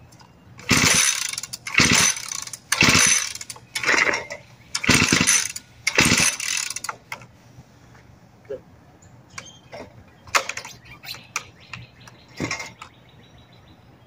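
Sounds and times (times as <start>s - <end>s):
engine pull-starter cranking: 0.6s - 7.3s.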